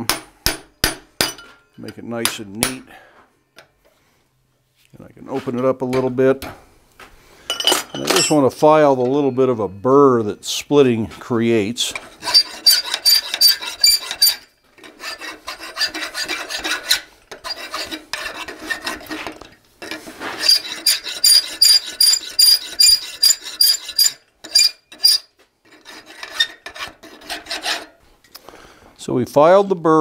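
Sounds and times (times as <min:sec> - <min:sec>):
file scraping steel bar: 0:12.0 - 0:28.0.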